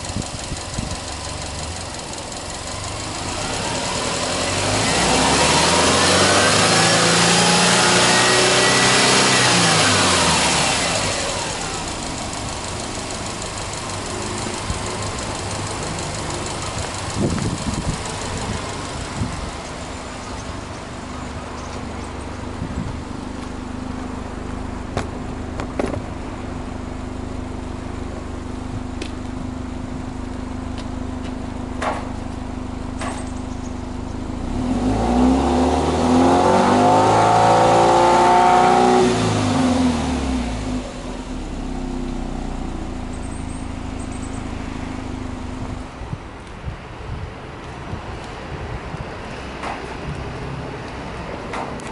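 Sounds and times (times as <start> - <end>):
car engine idling and revving: 0.0 - 51.9.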